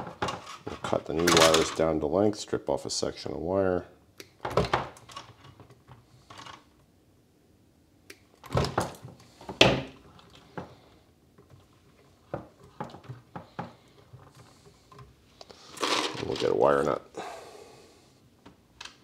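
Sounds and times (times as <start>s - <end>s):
rustle of wires being handled: 8.9s - 17.0s.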